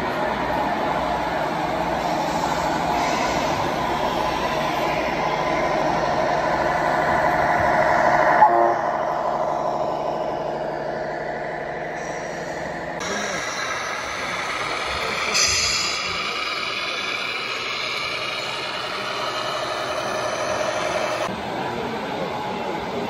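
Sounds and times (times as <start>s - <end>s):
model truck engine sound: 0.0s - 23.0s.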